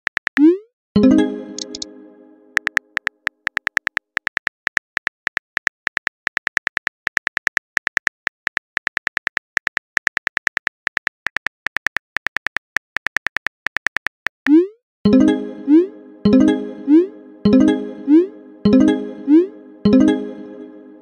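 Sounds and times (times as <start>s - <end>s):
phone keyboard typing clicks: 2.6s - 14.3s.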